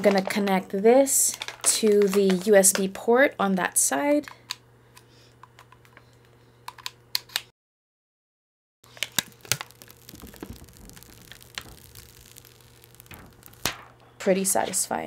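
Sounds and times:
plastic film crinkling as peeled: 0:08.9 - 0:13.9.

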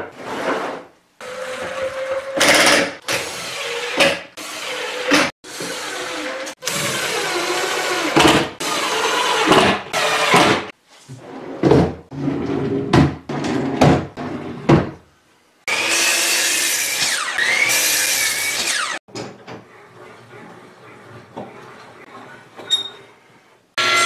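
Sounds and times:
drawer sliding and rattling: 0:11.1 - 0:15.0
miter saw cutting wood: 0:15.7 - 0:19.0.

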